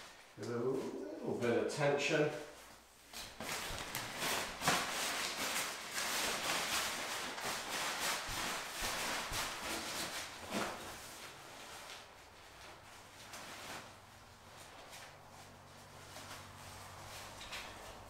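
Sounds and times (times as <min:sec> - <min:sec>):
nylon fabric rustling and crinkling: 0:02.1 - 0:18.0.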